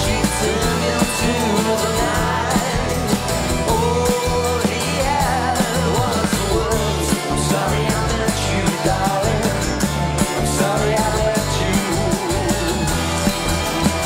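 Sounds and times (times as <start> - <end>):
drum hits: 0.0 - 14.0
live rock band playing: 0.0 - 14.0.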